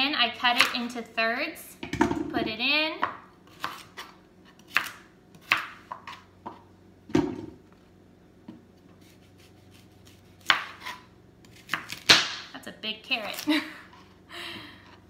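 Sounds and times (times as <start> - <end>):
knife chopping on plastic board: 3.0 - 6.6, 10.4 - 12.5.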